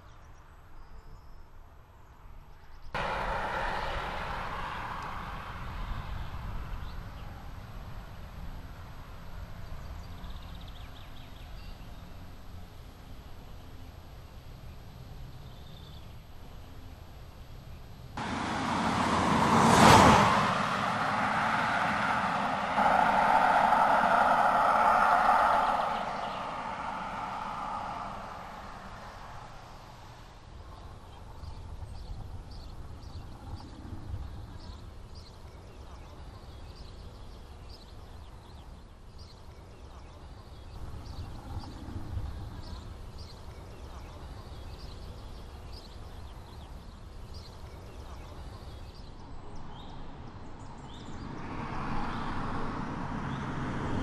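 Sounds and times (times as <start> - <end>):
faint outdoor ambience: 0.0 - 54.0
car passing at speed: 3.0 - 7.0, 18.2 - 30.4, 51.0 - 54.0
steady low rumble: 20.3 - 30.2.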